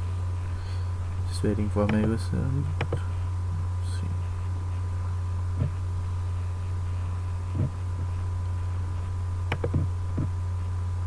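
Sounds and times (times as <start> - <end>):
low electrical hum: 0.0 - 11.0
sharp click: 1.8 - 2.2, 2.8 - 3.0, 9.5 - 10.3.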